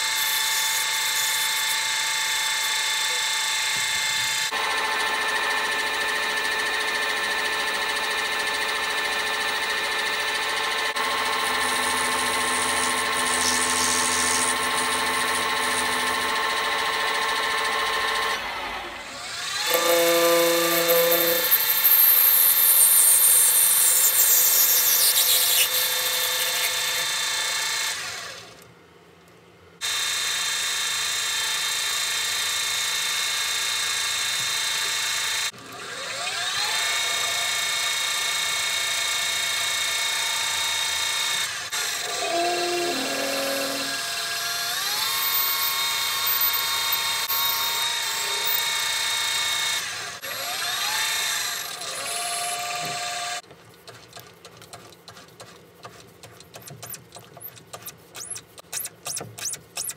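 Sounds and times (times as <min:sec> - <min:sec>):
lathe motor whine: 0:01.5 - 0:28.5, 0:39.8 - 0:53.4.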